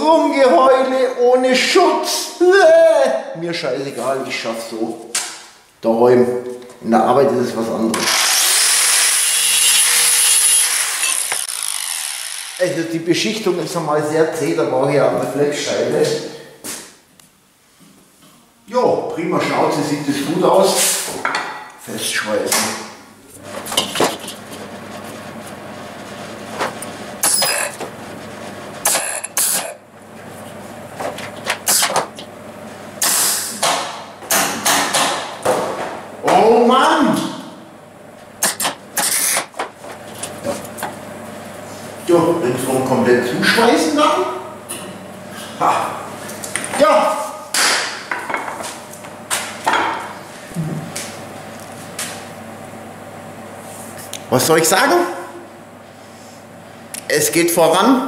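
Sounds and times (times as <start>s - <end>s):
arc-welding crackle: 10.9s - 12.8s.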